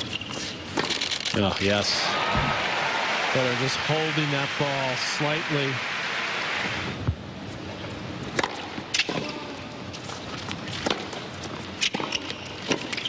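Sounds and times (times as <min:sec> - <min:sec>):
faint crowd hum: 0:01.3 - 0:08.3.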